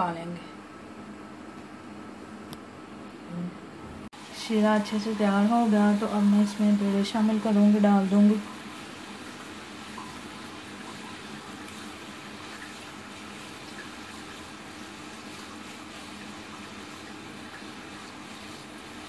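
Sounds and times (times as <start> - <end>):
syrup bubbling in a pan: 7.4 - 19.0.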